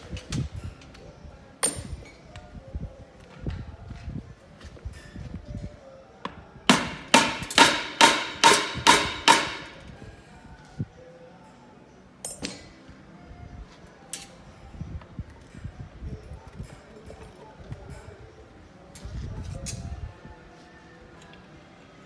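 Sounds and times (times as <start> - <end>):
hammer striking metal: 6.7 - 9.8.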